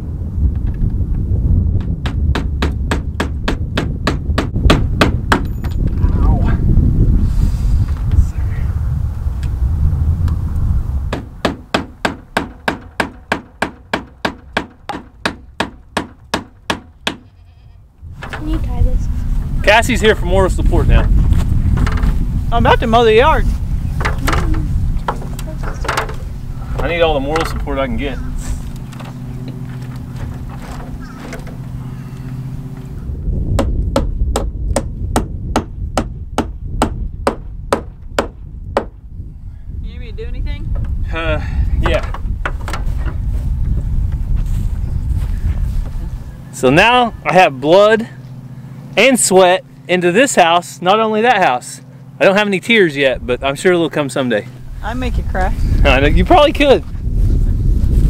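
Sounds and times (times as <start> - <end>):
low rumble: 0.0 - 49.0, 53.0 - 58.0
hammer driving nails: 2.0 - 5.8, 11.1 - 17.3, 33.6 - 38.9.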